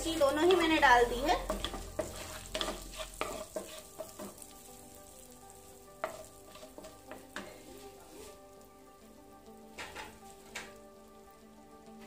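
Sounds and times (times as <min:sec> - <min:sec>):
wooden spatula scraping pan: 0:00.0 - 0:04.6, 0:06.0 - 0:08.5
spices sizzling in oil: 0:00.0 - 0:12.0.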